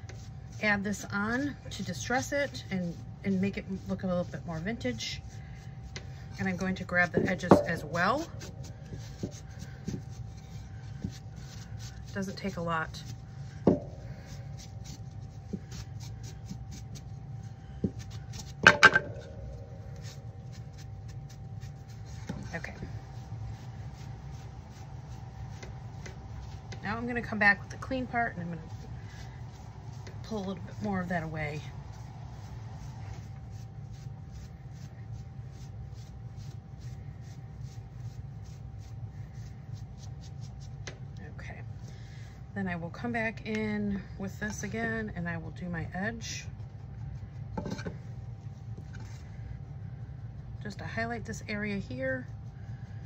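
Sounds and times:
wipe scrubbing a wooden board: 0:00.0 - 0:18.6, 0:19.9 - 0:40.8
steady low hum: 0:00.0 - 0:53.0.

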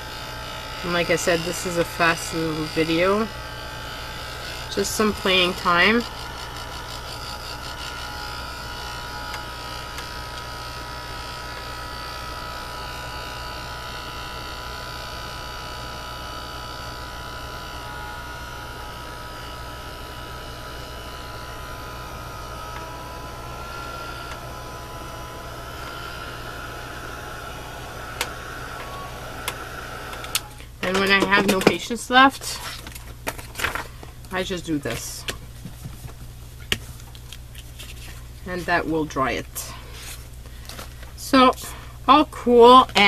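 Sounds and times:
electric dryer motor whining: 0:00.0 - 0:43.0.

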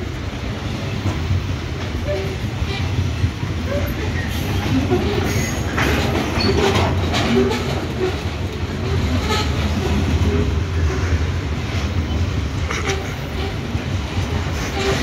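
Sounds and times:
freight wagons rumbling: 0:00.0 - 0:15.0
wheel clacks over rails: 0:03.6 - 0:10.5.

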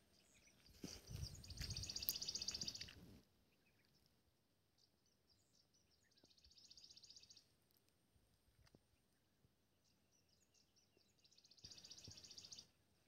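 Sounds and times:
bird chirps: 0:00.0 - 0:04.1, 0:04.8 - 0:07.5, 0:09.8 - 0:12.8.

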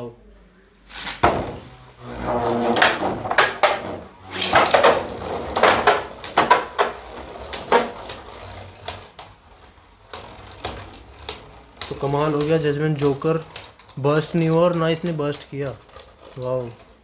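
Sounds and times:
whir of spinning tops: 0:04.3 - 0:14.9.

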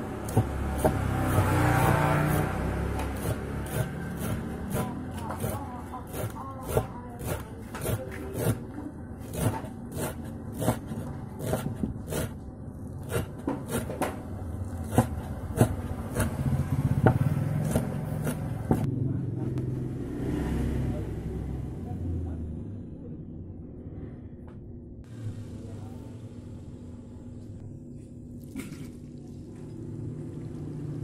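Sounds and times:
knife chopping on wooden board: 0:00.2 - 0:12.4, 0:13.0 - 0:18.9
low rumble: 0:14.2 - 0:28.4.

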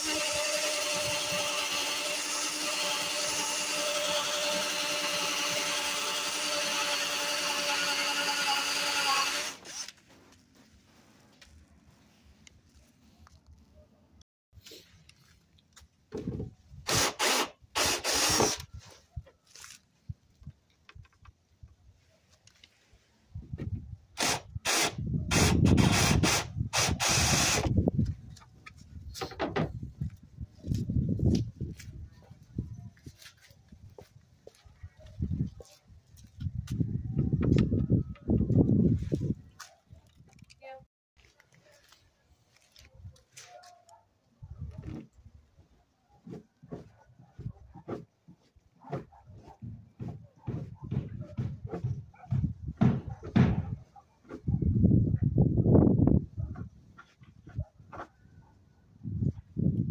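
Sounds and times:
cordless drill whining: 0:00.0 - 0:10.0, 0:16.9 - 0:18.7, 0:24.2 - 0:27.7.

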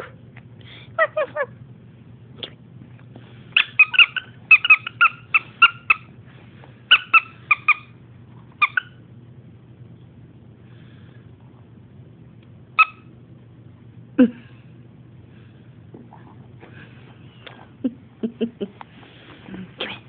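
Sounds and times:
squeaky dog toy squeaking: 0:03.6 - 0:06.1, 0:06.9 - 0:07.9.

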